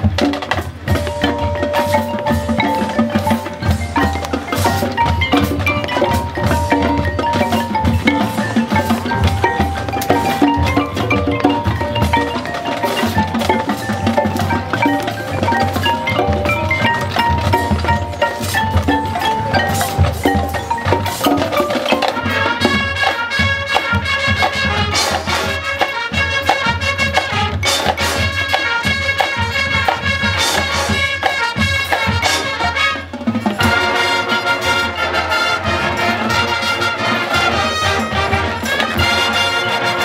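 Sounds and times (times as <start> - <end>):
drums: 0.0 - 40.0
marimbas playing melody: 0.0 - 40.0
held brass chords: 0.8 - 40.0.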